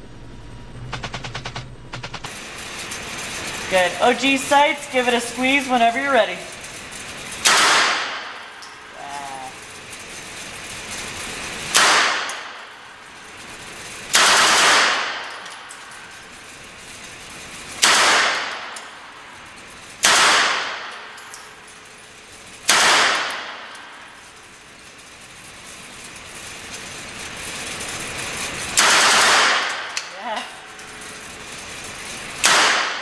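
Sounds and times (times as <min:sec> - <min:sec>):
submachine gun shots: 0:07.4 - 0:08.4, 0:11.7 - 0:12.6, 0:14.1 - 0:15.4, 0:17.8 - 0:18.8, 0:20.0 - 0:21.1, 0:22.6 - 0:23.9, 0:28.8 - 0:30.0, 0:32.4 - 0:33.0.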